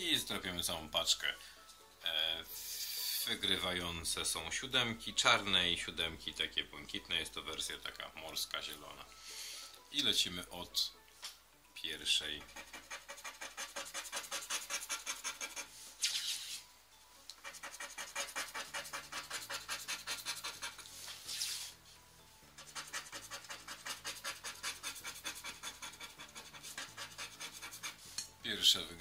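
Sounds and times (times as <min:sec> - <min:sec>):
scratching lottery ticket: 0:12.4 - 0:16.6, 0:17.4 - 0:21.8, 0:22.6 - 0:28.1.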